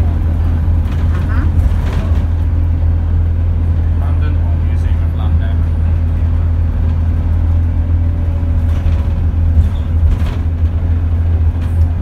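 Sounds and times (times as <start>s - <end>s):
bus engine rumble: 0.0s - 12.0s
faint engine whine: 0.0s - 12.0s
knocks from bus body: 8.6s - 10.9s.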